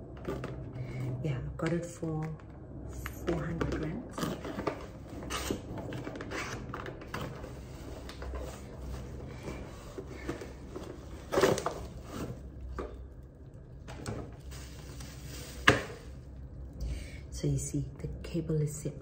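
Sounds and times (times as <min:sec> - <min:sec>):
packaging clicks and rustles: 0:01.8 - 0:13.2.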